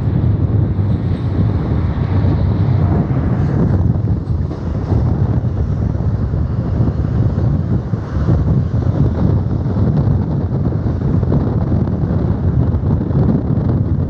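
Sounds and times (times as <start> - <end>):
train wheels rumbling on rails: 0.0 - 14.0
wind buffeting microphone: 0.0 - 14.0.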